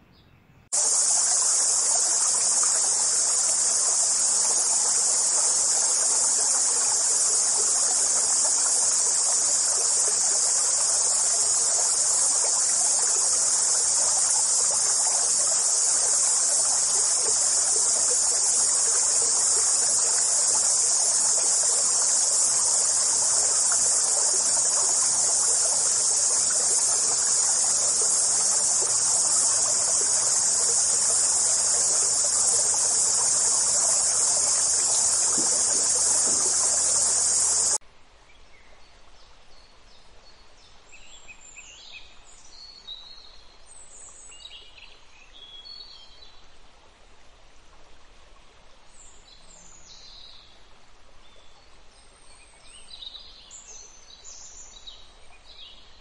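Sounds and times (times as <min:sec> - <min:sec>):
high-pitched insect chorus: 0:00.7 - 0:37.8
stream water rushing: 0:00.7 - 0:37.8.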